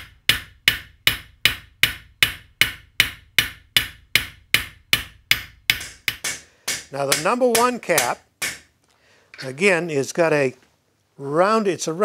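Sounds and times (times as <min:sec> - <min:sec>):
hammer tapping metal: 0:00.0 - 0:08.7.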